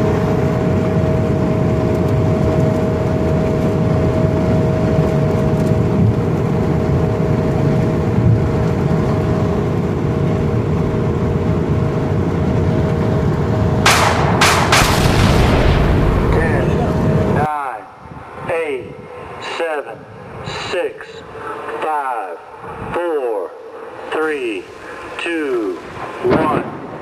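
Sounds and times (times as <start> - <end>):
vehicle road rumble: 0.0 - 17.5, 22.5 - 27.0
faint steady whine: 0.0 - 27.0
sharp hissing bursts: 23.7 - 26.3.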